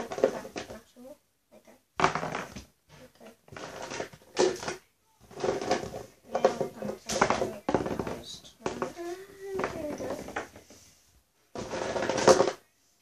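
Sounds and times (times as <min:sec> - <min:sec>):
girl talking indistinctly: 0:00.0 - 0:01.9, 0:02.9 - 0:03.5, 0:06.1 - 0:10.6.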